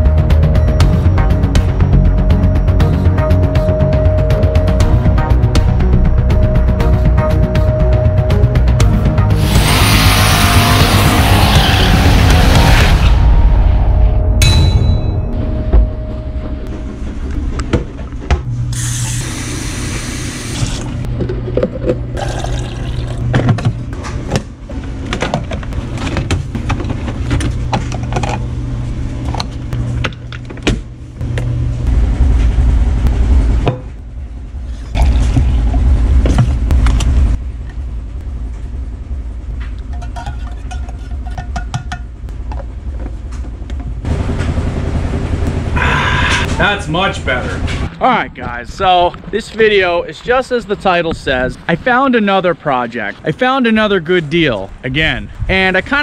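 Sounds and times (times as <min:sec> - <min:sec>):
steady low drone: 0:00.0 - 0:19.2, 0:31.0 - 0:51.8
coffee maker brewing: 0:18.7 - 0:23.3.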